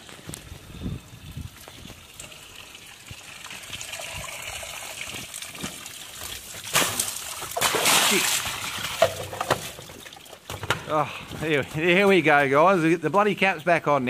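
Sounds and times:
sewage trickling from pipe: 0.4 - 10.6
loud water splash: 6.7 - 9.0.

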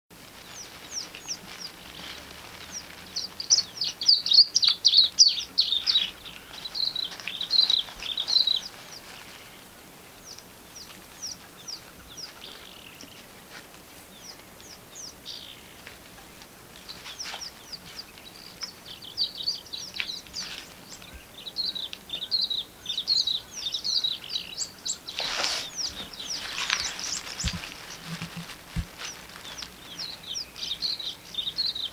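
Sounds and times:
small birds chirping: 0.1 - 31.9.

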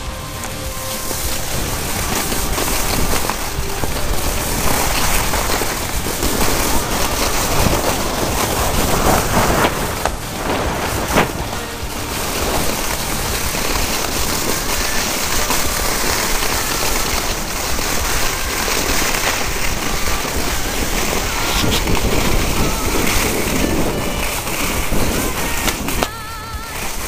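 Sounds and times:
skis scraping over snow: 0.0 - 27.0
wind rushing over microphone: 0.0 - 27.0.

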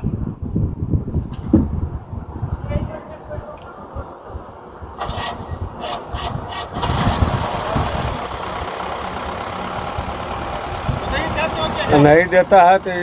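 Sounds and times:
vehicle engine running: 5.1 - 13.0.

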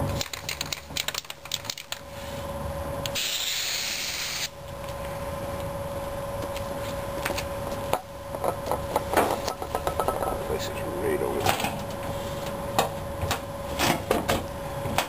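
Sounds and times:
aerosol can spraying: 3.2 - 4.5.

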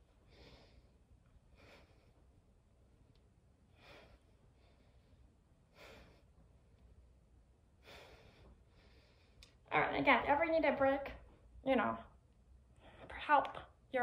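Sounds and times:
woman breathing softly: 0.0 - 2.4, 3.7 - 7.0, 7.7 - 9.6.

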